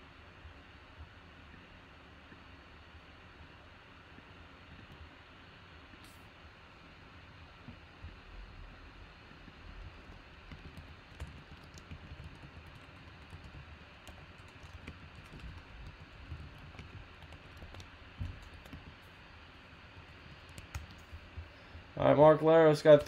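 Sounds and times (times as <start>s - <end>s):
typing on computer keyboard: 9.8s - 19.0s, 20.0s - 21.4s.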